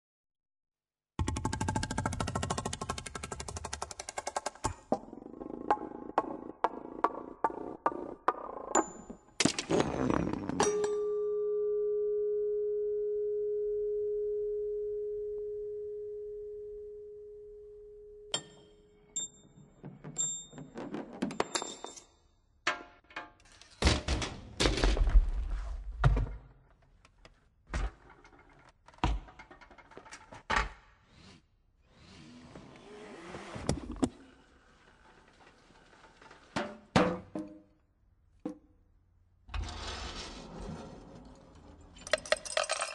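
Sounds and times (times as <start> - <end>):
metal parts rolling and clicking: 41.3 - 42.9.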